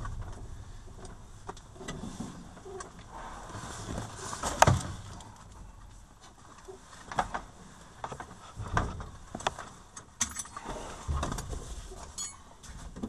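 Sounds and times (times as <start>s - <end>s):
low thumps: 0.0s - 3.2s
clicks knocks and rustles of gear: 1.0s - 13.0s
short metallic clink: 12.2s - 12.5s.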